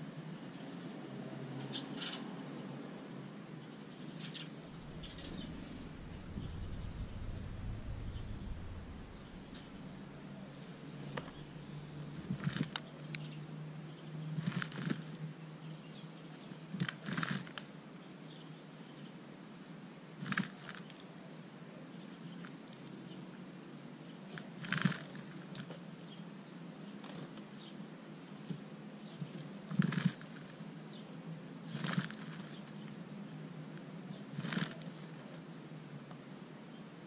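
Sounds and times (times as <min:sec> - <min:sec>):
bird wings fluttering in soil: 0:04.7 - 0:11.5, 0:12.1 - 0:12.8, 0:14.4 - 0:15.2, 0:16.7 - 0:17.7, 0:20.2 - 0:21.0, 0:24.3 - 0:25.8, 0:27.0 - 0:27.5, 0:29.2 - 0:30.6, 0:31.7 - 0:32.9, 0:34.3 - 0:35.4.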